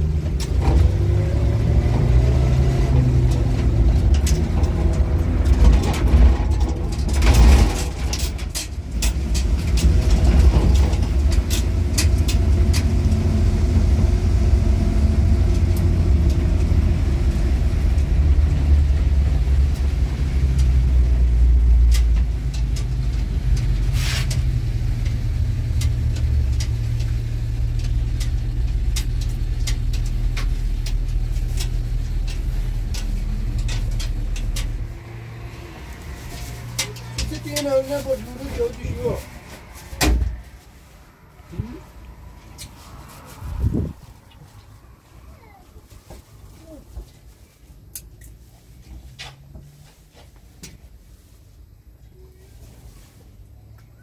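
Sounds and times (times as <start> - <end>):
knocks and rattles: 0.0 - 40.6
vehicle engine rumbling: 0.0 - 54.0.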